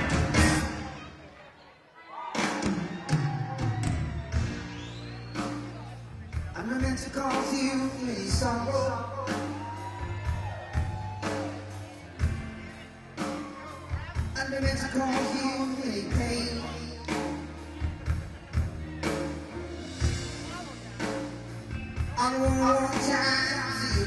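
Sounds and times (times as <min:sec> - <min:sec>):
bass notes: 0:00.0 - 0:01.0, 0:03.5 - 0:24.0
keyboards: 0:00.0 - 0:01.5, 0:02.4 - 0:24.0
person singing: 0:06.5 - 0:11.9, 0:13.2 - 0:18.2, 0:22.0 - 0:24.0.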